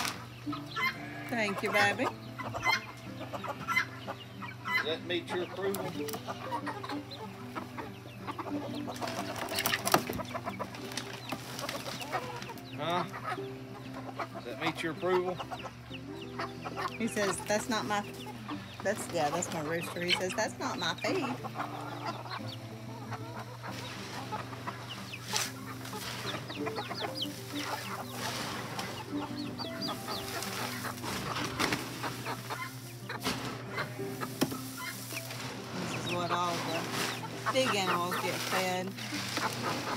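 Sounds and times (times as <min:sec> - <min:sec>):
chickens clucking: 0:00.0 - 0:39.9
grain rustling in plastic tote: 0:29.8 - 0:39.9.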